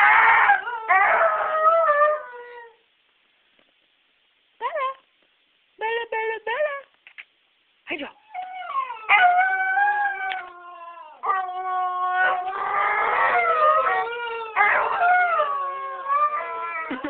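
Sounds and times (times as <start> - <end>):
dog howling: 8.3 - 17.0.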